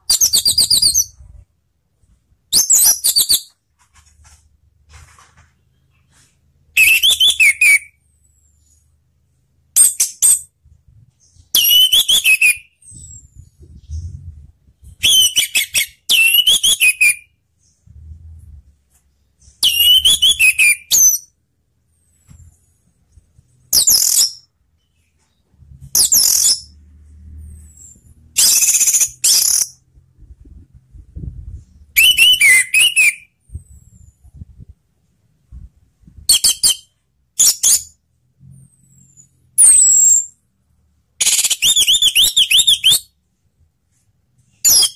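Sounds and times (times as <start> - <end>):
bird whistled song: 0.1 - 1.4, 2.5 - 3.6, 6.8 - 8.8, 11.2 - 17.8, 19.4 - 21.4, 23.7 - 25.1, 26.0 - 26.7, 27.6 - 29.8, 31.9 - 34.1, 36.3 - 38.0, 38.8 - 40.4, 41.2 - 43.2, 44.6 - 44.9.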